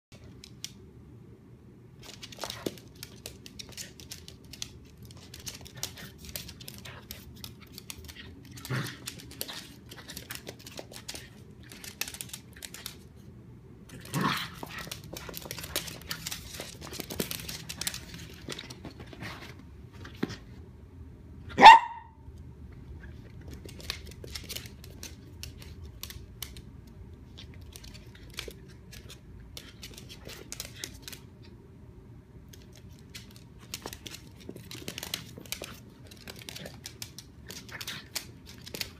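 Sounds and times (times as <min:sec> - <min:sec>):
paws clicking and scuffling on floor: 0:02.0 - 0:20.6, 0:22.7 - 0:31.6, 0:32.4 - 0:38.9
sharp high dog bark: 0:21.6 - 0:22.2.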